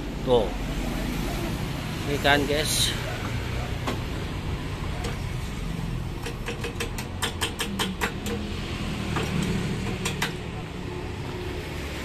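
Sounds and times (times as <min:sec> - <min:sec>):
traffic rumble: 0:00.0 - 0:12.0
hand tools clicking on metal: 0:06.2 - 0:08.5, 0:09.1 - 0:10.4.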